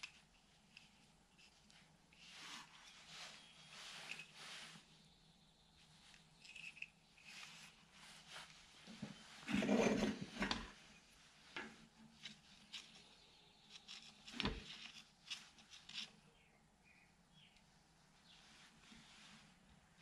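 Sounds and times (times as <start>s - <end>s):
hands handling wires and tools: 0.0s - 4.4s, 6.1s - 9.2s, 11.5s - 16.2s
rustling: 0.0s - 5.1s, 5.9s - 16.2s.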